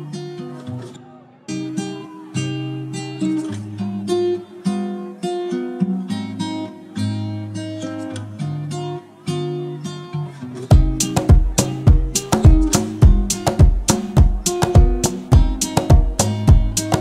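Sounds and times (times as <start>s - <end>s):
acoustic guitar melody: 0.0s - 17.0s.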